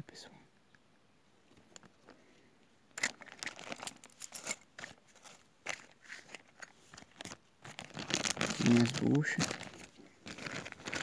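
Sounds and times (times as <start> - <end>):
hands rustling: 3.1 - 11.0.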